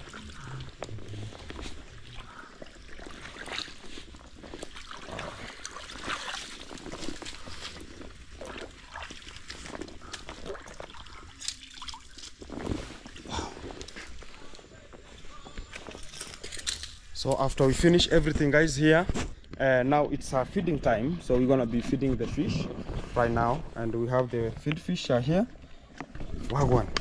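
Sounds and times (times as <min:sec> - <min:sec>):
pond water splashing: 0:00.0 - 0:14.6.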